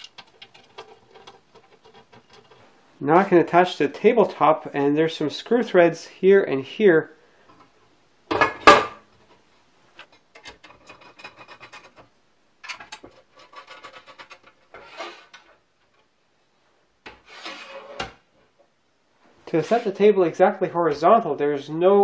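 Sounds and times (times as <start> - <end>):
metal parts rubbing and clicking: 0.0 - 2.6, 10.4 - 15.5.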